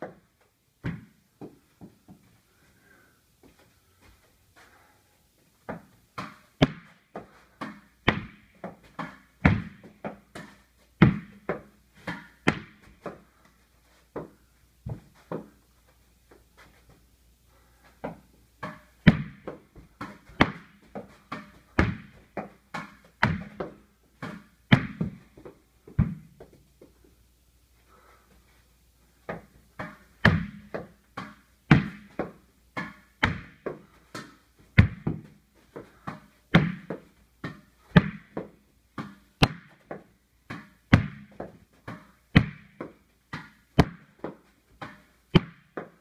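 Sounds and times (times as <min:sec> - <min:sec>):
tennis ball smacks and thuds: 0:00.8 - 0:02.2, 0:05.7 - 0:13.2, 0:18.0 - 0:26.6, 0:29.3 - 0:46.0.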